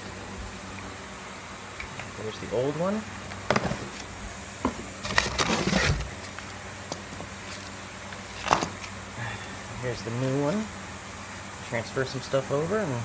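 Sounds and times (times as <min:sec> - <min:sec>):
cardboard rustling: 0:03.5 - 0:06.5.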